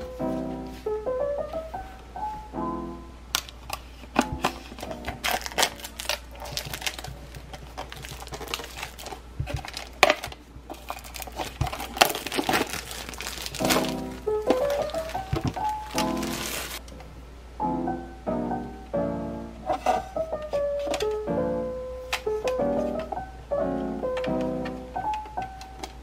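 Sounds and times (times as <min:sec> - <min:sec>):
background music with melody: 0:00.0 - 0:03.4, 0:13.6 - 0:16.8, 0:17.6 - 0:26.0
plastic wrapping crinkling: 0:03.3 - 0:16.9.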